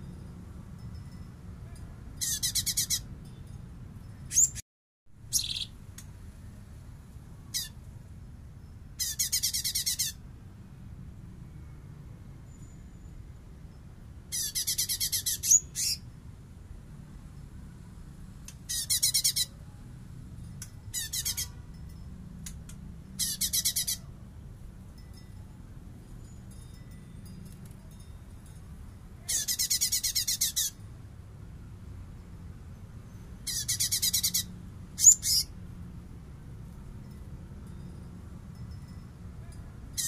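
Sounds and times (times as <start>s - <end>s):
bird harsh rattling song: 2.2s - 3.2s, 4.2s - 4.6s, 5.2s - 6.0s, 7.5s - 7.8s, 8.9s - 10.2s, 14.2s - 16.1s, 18.6s - 19.5s, 20.8s - 24.2s, 29.2s - 30.8s, 33.1s - 35.6s.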